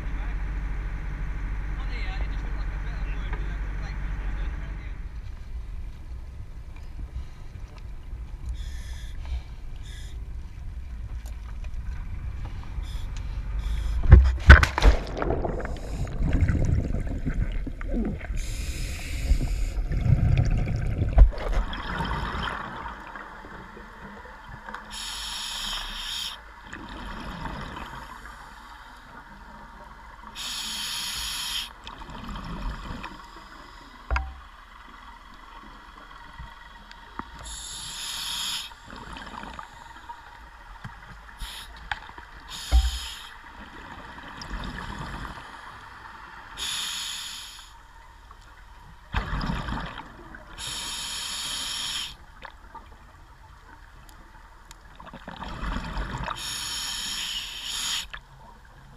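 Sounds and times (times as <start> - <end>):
low rumble on a boat: 0.0 - 58.9
scuba regulator breathing: 8.6 - 10.2, 12.8 - 14.1, 18.4 - 19.8, 24.9 - 26.4, 30.4 - 31.8, 37.4 - 40.1, 41.4 - 41.8, 42.5 - 43.4, 46.6 - 47.8, 50.6 - 52.2, 56.4 - 58.1
loud splash into water: 14.1 - 16.7
exhaled bubbles underwater: 14.5 - 24.7, 26.6 - 28.4, 42.4 - 46.0, 49.1 - 51.1, 54.8 - 56.8.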